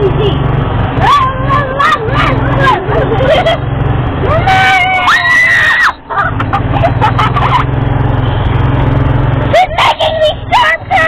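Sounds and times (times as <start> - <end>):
golf cart humming: 0.0 - 11.0
high-pitched scream: 4.3 - 6.0.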